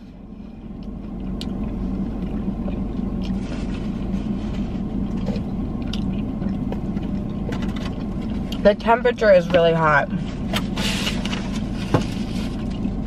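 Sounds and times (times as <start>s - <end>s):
car idling hum: 0.0s - 13.0s
faint chewing clicks: 0.8s - 3.4s, 5.1s - 8.6s.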